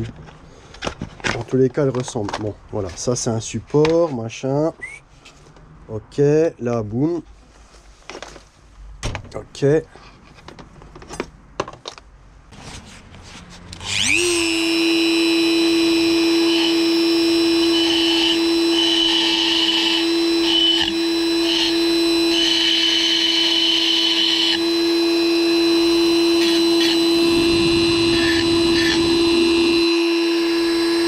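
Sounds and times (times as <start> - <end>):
rotary tool high whine: 13.7 - 31.0
rotary tool grinding metal: 13.8 - 31.0.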